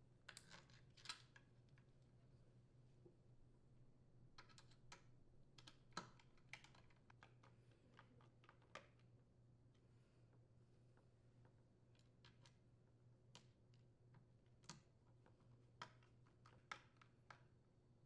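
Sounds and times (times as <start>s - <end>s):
faint plastic clicks and taps: 4.4s - 9.1s.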